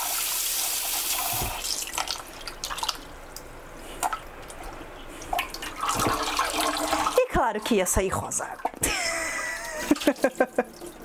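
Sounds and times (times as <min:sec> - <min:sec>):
water splashing and dripping: 0:00.0 - 0:03.1, 0:08.6 - 0:11.0.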